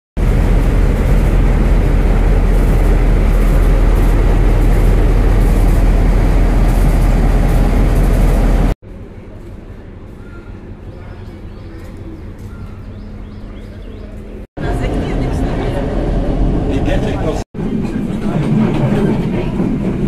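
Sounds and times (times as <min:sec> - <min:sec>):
diesel locomotive engine running: 0:00.2 - 0:20.0.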